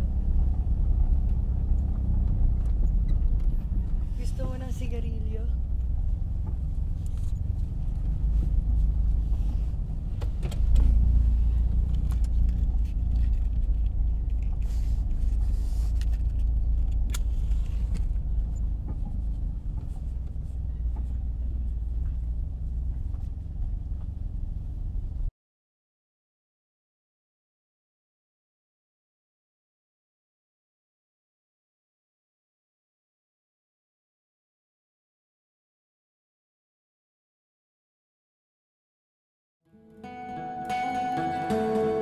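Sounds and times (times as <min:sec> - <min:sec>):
car interior engine and road rumble: 0:00.0 - 0:25.3.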